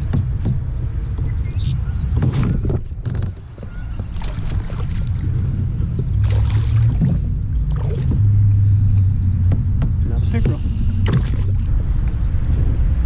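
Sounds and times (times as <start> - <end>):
low steady rumble: 0.0 - 13.0
fish splashing at water surface: 6.2 - 8.2.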